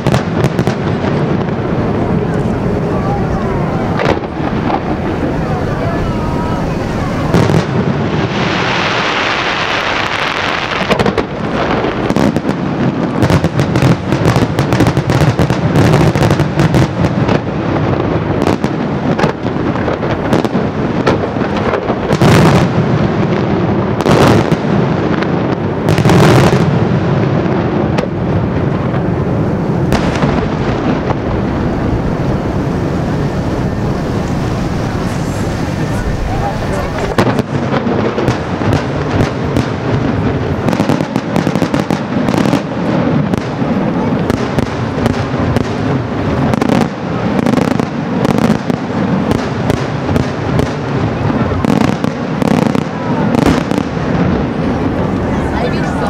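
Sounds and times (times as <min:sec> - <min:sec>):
firework hissing rush: 0:00.0 - 0:22.6, 0:29.0 - 0:47.2
sharp firework bangs: 0:00.0 - 0:55.8
heavy firework booms: 0:00.0 - 0:56.0.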